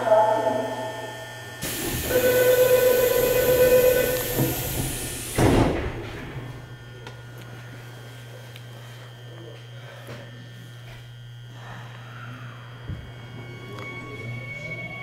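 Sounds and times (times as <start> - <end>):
door warning tone: 0.0 - 5.4, 12.9 - 15.0
hiss of doors: 1.6 - 5.9
subway train doors closing: 1.6 - 6.6
doors shutting thud: 4.0 - 6.6.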